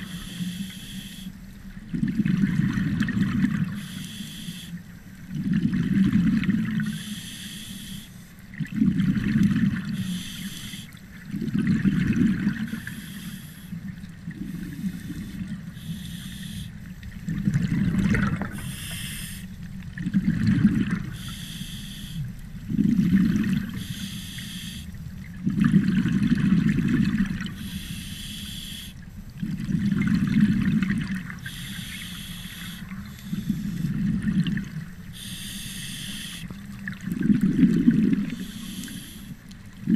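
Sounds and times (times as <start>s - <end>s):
bubbling exhaled air: 5.3s - 7.0s, 8.6s - 22.0s, 22.6s - 24.8s, 25.4s - 28.4s, 29.4s - 39.9s
hissing regulator intake: 14.5s - 16.7s.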